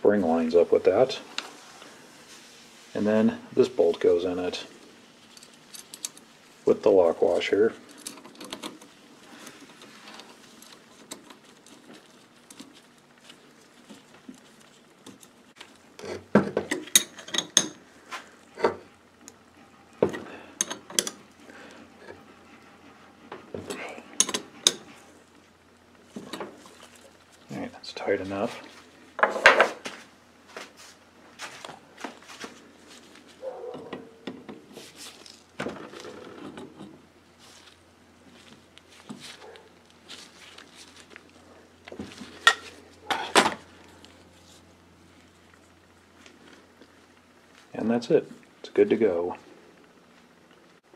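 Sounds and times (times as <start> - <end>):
wrench clinking on metal bolt: 16.0 - 17.8, 20.6 - 21.2, 24.2 - 24.8
wrench clattering: 20.6 - 21.2, 24.2 - 24.8.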